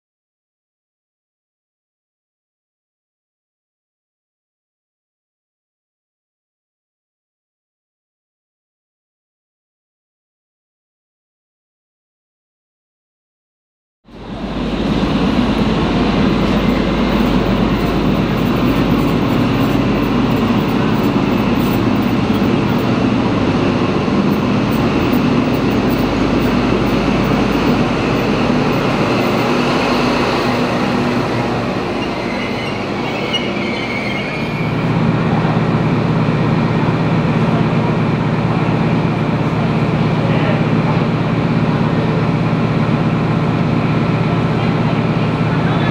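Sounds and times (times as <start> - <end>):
diesel locomotive engine running: 14.1 - 45.9
rail and wheel noise: 14.1 - 45.9
high squeal: 25.2 - 34.9.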